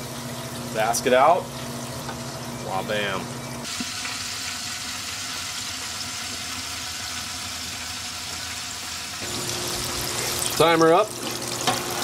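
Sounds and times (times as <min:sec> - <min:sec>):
fish sizzling in hot oil: 0:03.6 - 0:12.0.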